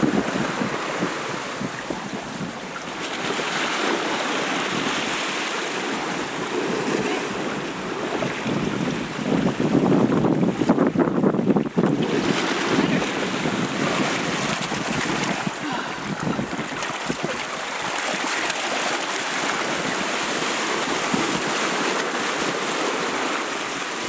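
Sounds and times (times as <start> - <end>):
wind buffeting microphone: 0.0 - 5.2, 5.8 - 18.4
waves splashing against raft: 0.0 - 24.0.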